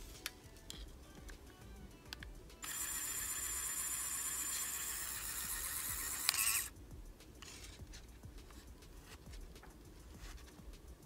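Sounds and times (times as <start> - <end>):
small motor whirring: 2.6 - 6.7.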